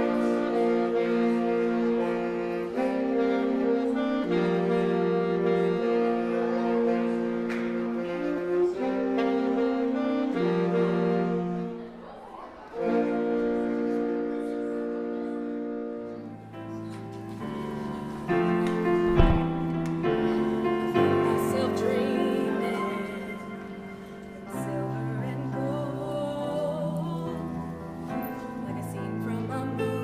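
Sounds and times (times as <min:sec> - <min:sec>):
electronic keyboard piano ballad: 0:00.0 - 0:11.8, 0:12.8 - 0:30.0
saxophone quartet playing chords: 0:00.0 - 0:30.0
thump: 0:19.0 - 0:19.9.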